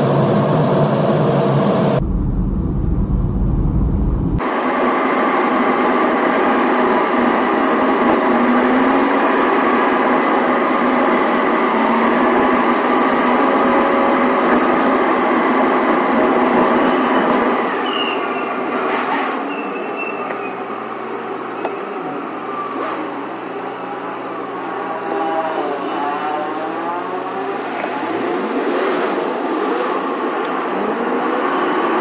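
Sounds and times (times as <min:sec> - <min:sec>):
traffic echoing in a tunnel: 0:00.0 - 0:03.1, 0:03.7 - 0:32.0.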